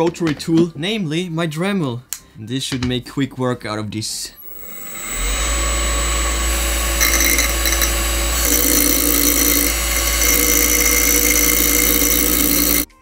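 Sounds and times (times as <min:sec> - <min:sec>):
electric motor spinning: 0:04.4 - 0:12.9
rotary tool grinding steel: 0:04.4 - 0:12.9.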